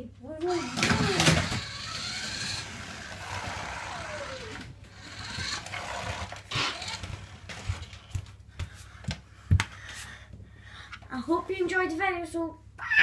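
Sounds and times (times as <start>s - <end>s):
toy car motor whirring: 0.4s - 7.7s.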